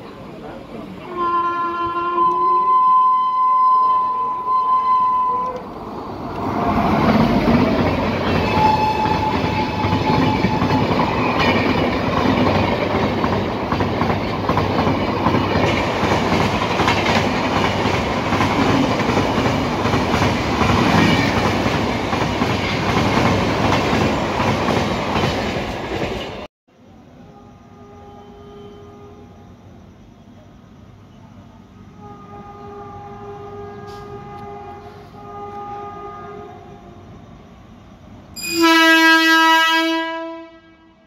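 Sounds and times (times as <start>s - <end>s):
train passing at speed: 0.0s - 41.0s
train horn: 1.0s - 5.7s, 8.2s - 11.8s, 27.2s - 29.5s, 32.0s - 37.2s, 38.4s - 41.0s
wheels clickety-clack on rails: 6.3s - 26.5s.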